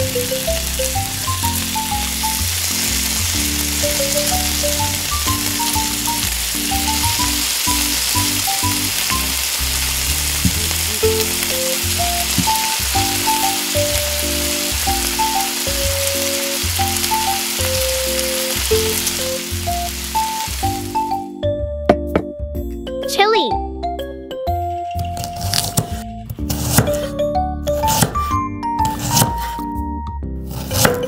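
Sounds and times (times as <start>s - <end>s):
oil sizzling: 0.0s - 21.3s
light background music: 0.0s - 31.0s.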